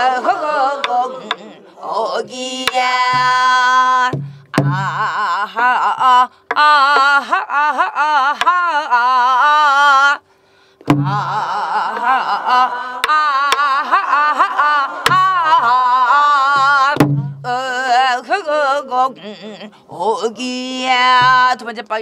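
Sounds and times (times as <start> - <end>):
other voices singing: 0.0 - 10.2, 10.9 - 21.7
woman singing with heavy vibrato: 0.0 - 22.0
barrel drum struck with stick: 4.1 - 4.9, 10.9 - 11.2, 17.0 - 17.4.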